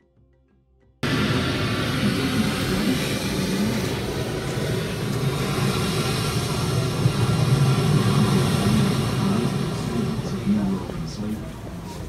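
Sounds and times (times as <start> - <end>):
surf and wind roar: 1.0 - 12.0.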